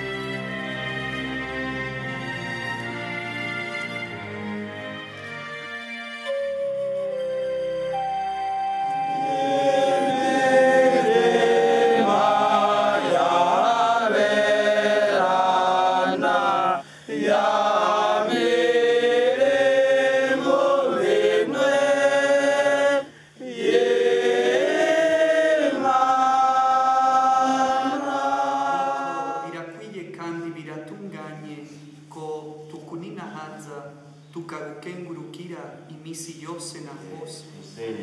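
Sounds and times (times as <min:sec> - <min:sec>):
choir singing slow chant: 0:08.8 - 0:29.8, 0:37.6 - 0:38.0.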